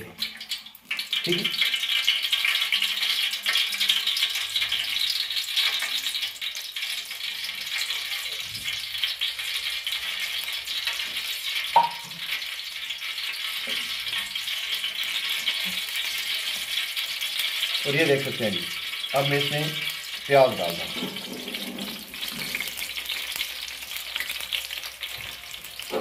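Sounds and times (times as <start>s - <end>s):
oil sizzling and crackling: 0.0s - 26.0s.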